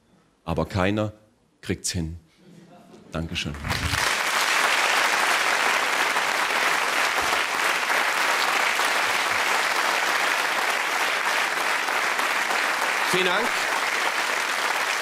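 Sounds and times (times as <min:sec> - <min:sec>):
audience applauding: 0:03.5 - 0:15.0.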